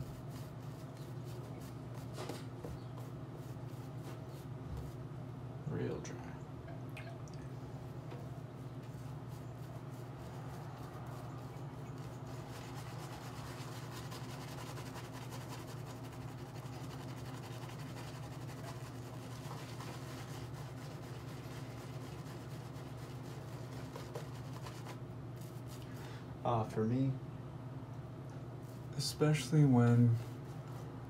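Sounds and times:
shaving brush scrubbing lather: 9.0s - 25.8s.

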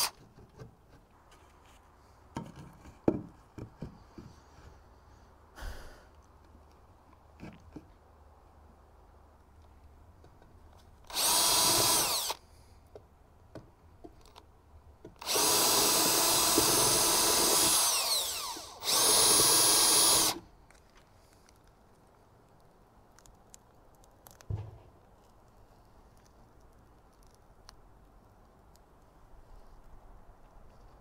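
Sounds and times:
cordless drill running: 11.1s - 12.4s, 15.2s - 20.4s.

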